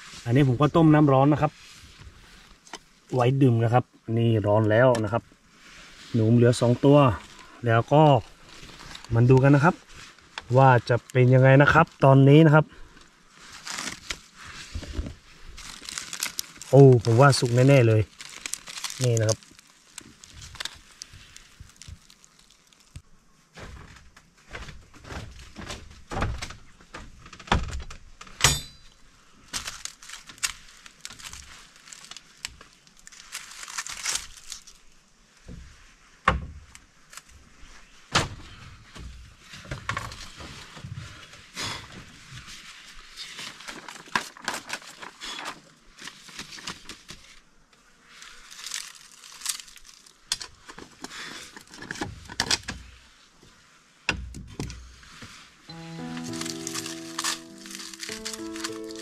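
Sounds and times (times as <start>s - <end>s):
dry leaf crinkling and tearing: 6.6s - 23.0s, 29.4s - 35.0s, 42.2s - 47.4s, 48.0s - 52.6s, 55.7s - 59.0s.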